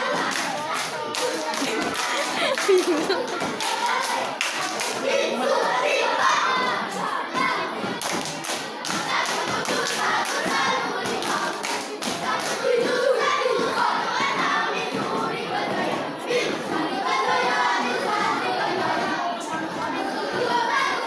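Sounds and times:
children chanting and singing: 0.0 - 21.0
sharp claps and thumps: 7.4 - 16.1.

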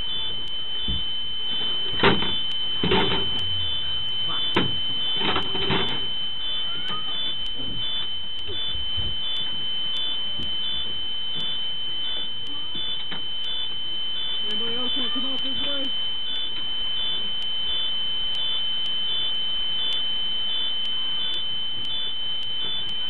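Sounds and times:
high-pitched alarm tone: 0.0 - 23.0
pulsing electronic beep: 0.0 - 23.0
knocks and bangs inside bus: 1.9 - 6.1, 7.6 - 9.4.

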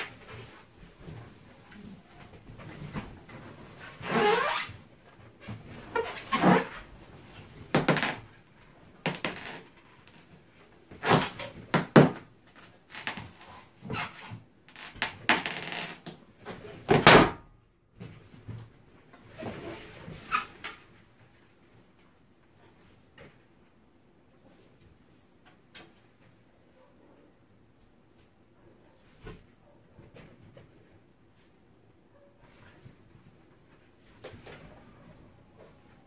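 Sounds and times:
balloon squeaking and rubbing: 3.7 - 4.9, 5.5 - 7.0, 10.9 - 11.4, 12.9 - 16.1.

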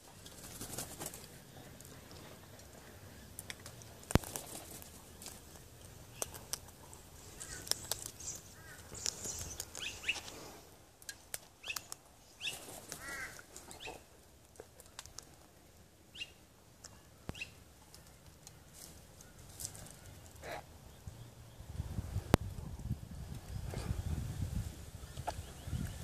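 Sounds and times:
cockatoo cracking seed: 3.3 - 12.1, 14.5 - 15.5
cockatoo chirps: 7.3 - 10.3.

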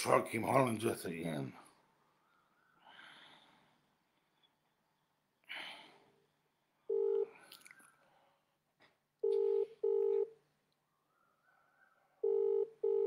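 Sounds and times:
telephone ringback tone: 6.9 - 7.4, 9.2 - 10.3, 12.2 - 13.0.

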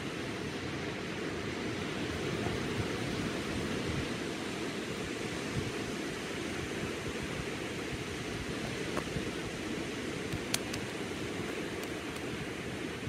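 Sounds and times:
faint sharp clicks: 10.3 - 10.9.

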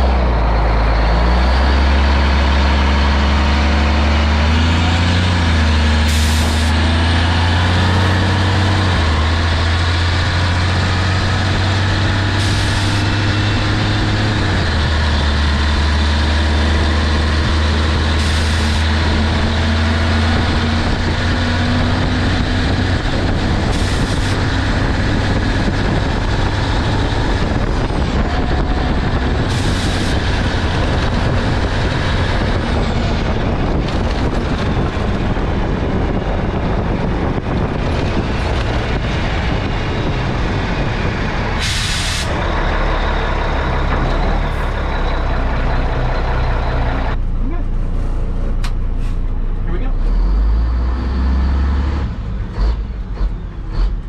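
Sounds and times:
diesel truck engine running: 0.0 - 54.0
road noise: 0.0 - 54.0.

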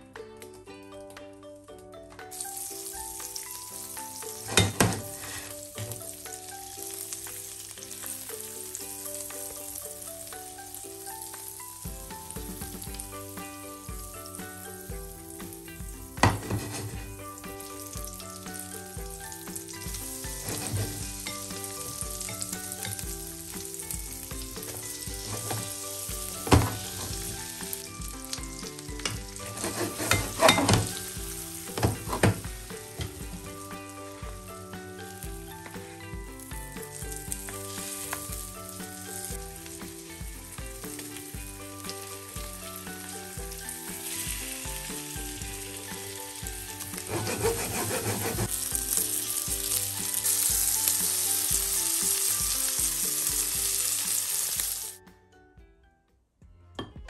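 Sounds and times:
fish frying in butter: 2.3 - 55.0
spatula clacking against pan: 28.6 - 33.6.

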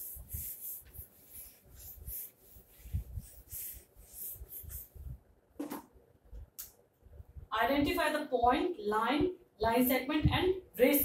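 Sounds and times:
eraser wiping whiteboard: 0.0 - 5.1.

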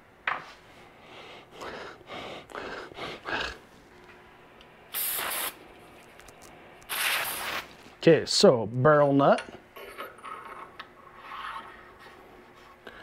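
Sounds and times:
aerosol can spraying: 4.9 - 5.6, 6.9 - 7.8.

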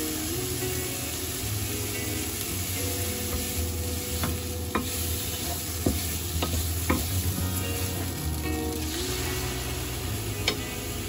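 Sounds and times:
vegetables sizzling in a frying pan: 0.0 - 11.0
wooden spatula knocking on pan: 4.2 - 7.2.

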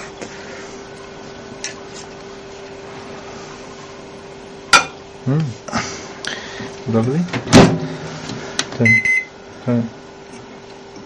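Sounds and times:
microwave oven humming: 0.0 - 11.0.

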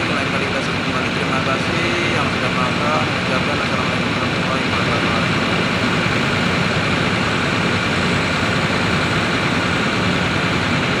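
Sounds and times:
heavy machinery diesel engines: 0.0 - 11.0.

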